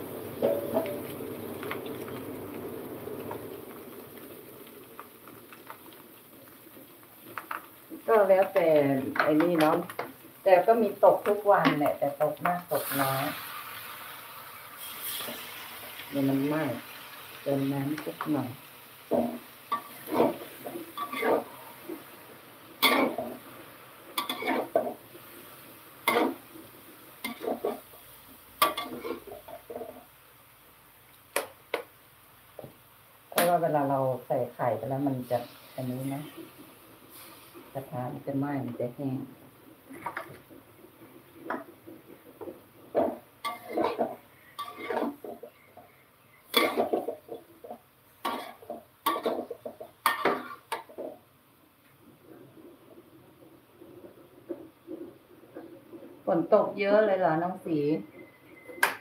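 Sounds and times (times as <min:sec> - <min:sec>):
metal spatula scraping wok: 0:05.0 - 0:17.1, 0:19.1 - 0:30.1, 0:35.2 - 0:38.2, 0:39.6 - 0:45.9, 0:46.5 - 0:51.2.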